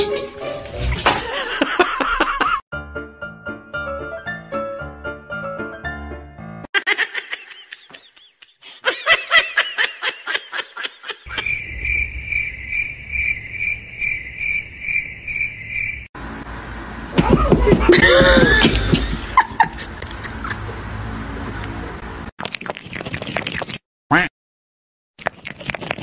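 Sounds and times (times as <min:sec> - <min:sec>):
chirpy laughter: 0:01.3 - 0:02.6, 0:06.7 - 0:11.6, 0:17.2 - 0:20.8.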